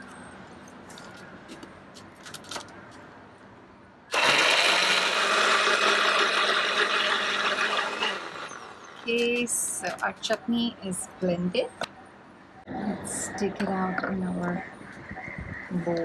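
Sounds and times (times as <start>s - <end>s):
electric blender running: 4.1s - 8.8s.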